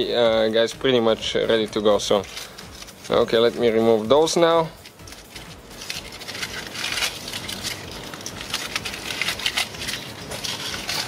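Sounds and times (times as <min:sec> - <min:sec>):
aluminum foil crinkling: 0:00.0 - 0:11.0.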